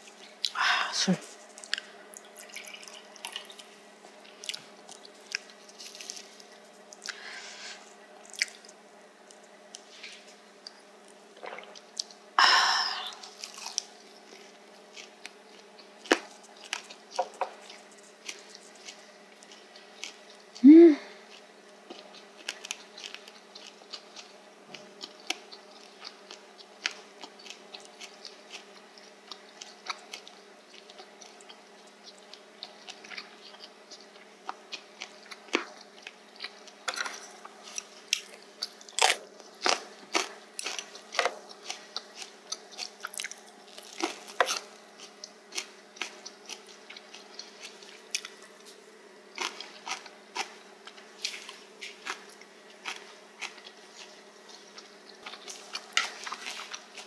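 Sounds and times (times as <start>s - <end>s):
chewing crunchy food: 1.2s - 12.3s, 12.9s - 57.0s.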